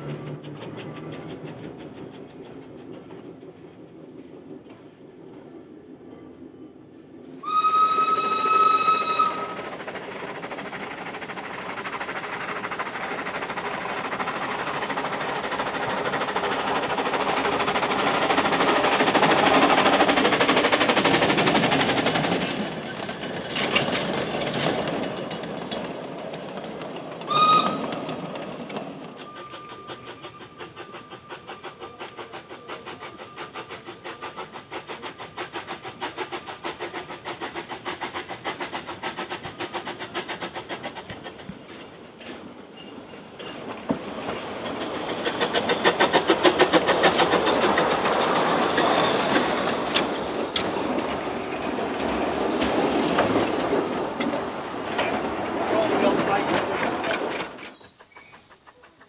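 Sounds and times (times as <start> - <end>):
steam train passing: 0.0 - 59.0
steam locomotive whistle: 7.4 - 9.7, 27.3 - 28.0.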